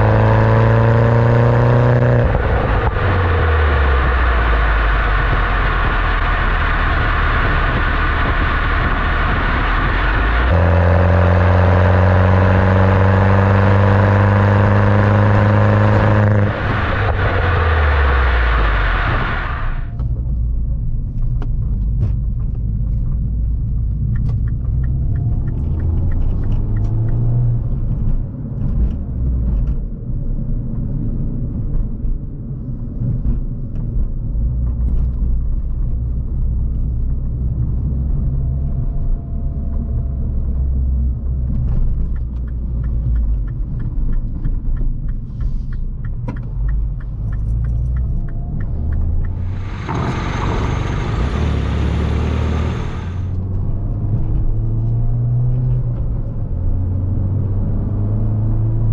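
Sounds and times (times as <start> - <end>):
car engine drone in cabin: 0.0 - 58.9
loud rushing hiss: 2.4 - 12.2, 15.9 - 20.0, 49.3 - 53.3.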